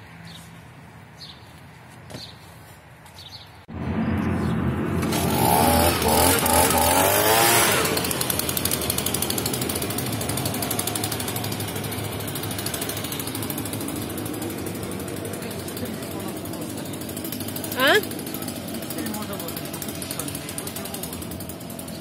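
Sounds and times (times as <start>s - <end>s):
leaf blower engine running: 4.8s - 22.0s.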